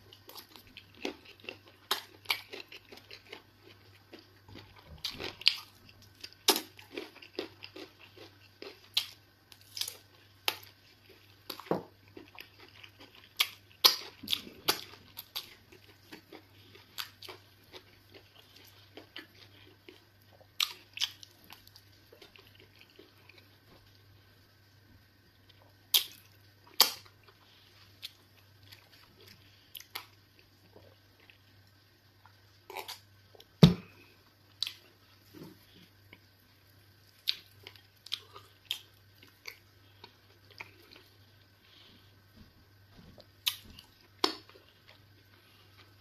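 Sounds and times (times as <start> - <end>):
steady low hum: 0.0 - 46.0
heavy thump: 33.6 - 33.9.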